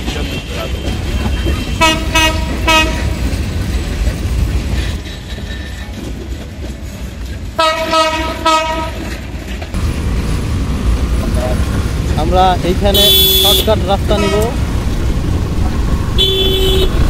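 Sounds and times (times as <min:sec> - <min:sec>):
train coaches rumbling past: 0:00.0 - 0:17.0
train horn toots: 0:00.4 - 0:03.4, 0:07.6 - 0:09.1, 0:12.9 - 0:14.6, 0:16.2 - 0:17.0.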